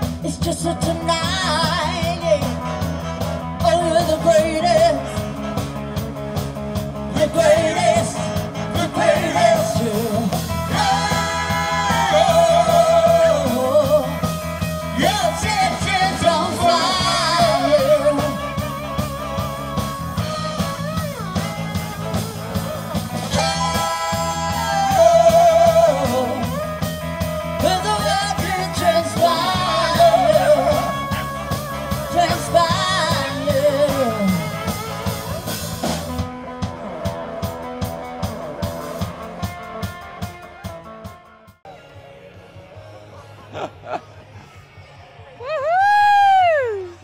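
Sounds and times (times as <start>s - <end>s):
live band playing: 0.0s - 47.0s
horn section: 0.3s - 45.4s
person singing with vibrato: 7.1s - 18.9s, 23.3s - 26.7s, 27.5s - 34.7s.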